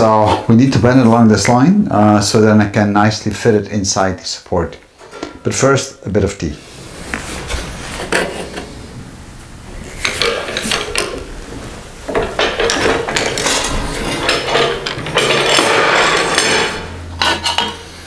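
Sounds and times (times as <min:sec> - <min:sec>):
metal rattling and scraping: 0:10.0 - 0:18.0
metallic knocks and clanks: 0:12.1 - 0:17.9.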